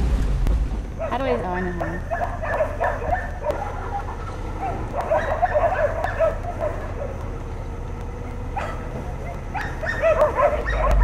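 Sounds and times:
low steady rumble: 0.0s - 11.0s
animal yelps: 1.0s - 7.2s, 8.5s - 11.0s.

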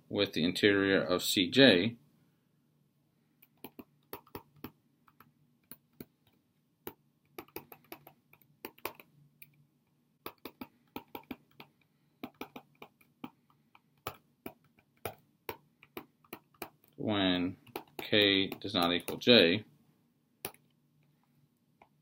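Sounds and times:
stylus tapping on tablet: 3.4s - 9.6s, 10.2s - 17.0s, 17.6s - 19.3s, 20.4s - 20.8s.

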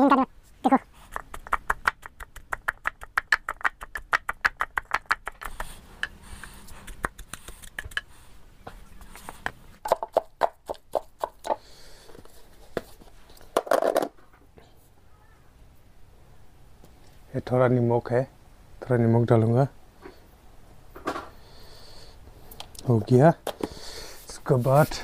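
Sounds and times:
wooden pestle pounding in mortar: 9.8s - 11.6s.

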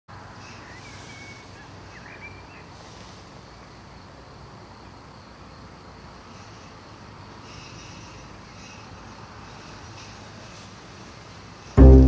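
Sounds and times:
faint bird chirps: 0.3s - 3.2s.

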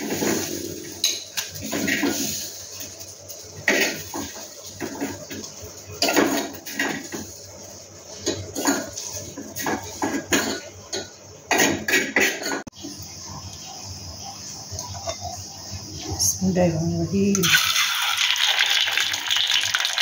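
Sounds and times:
dishes and utensils clattering: 3.6s - 7.4s, 8.1s - 12.7s.

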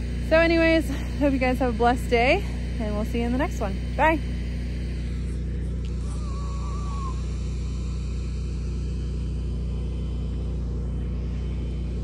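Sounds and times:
low motor hum: 0.0s - 12.0s
faint whistling call: 6.0s - 7.4s.

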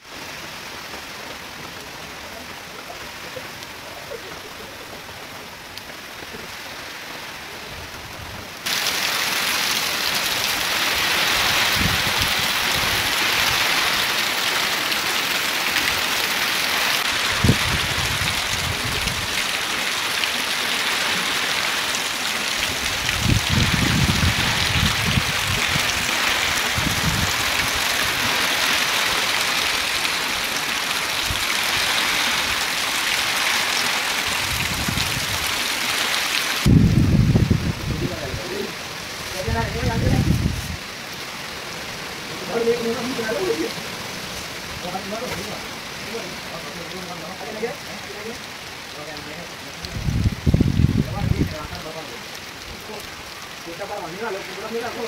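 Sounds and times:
heavy rain pouring: 0.0s - 55.0s
low rumbling wind gusts: 4.0s - 8.7s, 9.9s - 14.2s, 15.9s - 19.8s, 21.3s - 42.5s, 49.8s - 51.8s.

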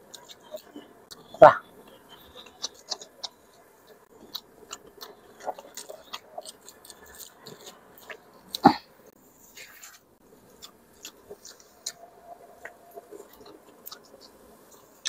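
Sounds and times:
person chewing with wet mouth sounds: 0.0s - 15.0s
mouth clicks and smacks: 0.1s - 8.8s.

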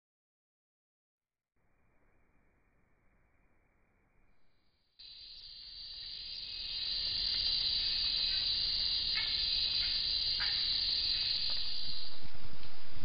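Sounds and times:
insect chorus drone: 1.8s - 13.0s
downward chirps: 10.4s - 13.0s.

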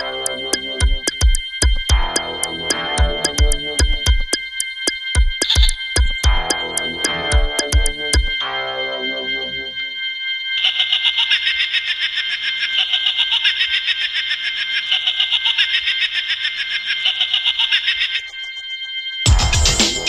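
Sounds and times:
techno beat with deep bass: 0.0s - 8.4s, 19.3s - 20.0s
faint low synth tones: 0.0s - 10.1s
pulsing alarm-like synth: 0.0s - 20.0s.

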